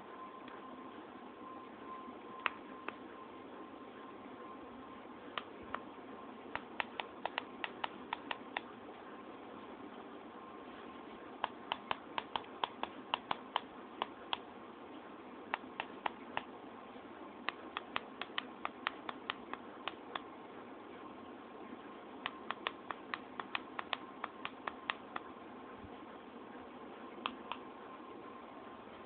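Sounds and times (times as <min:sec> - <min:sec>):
steady hum: 0:00.0 - 0:29.0
keyboard key clicks: 0:06.6 - 0:08.7, 0:11.4 - 0:14.4, 0:17.5 - 0:20.3.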